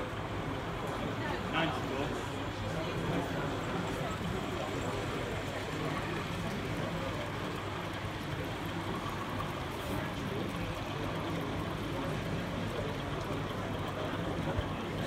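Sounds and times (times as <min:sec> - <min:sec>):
babble of many people talking: 0:00.0 - 0:15.0.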